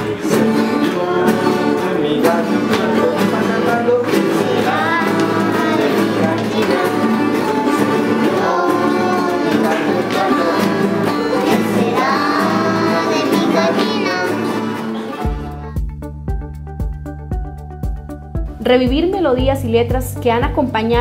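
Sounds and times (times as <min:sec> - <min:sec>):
children singing: 0:00.0 - 0:15.8
acoustic guitars strumming: 0:00.0 - 0:21.0.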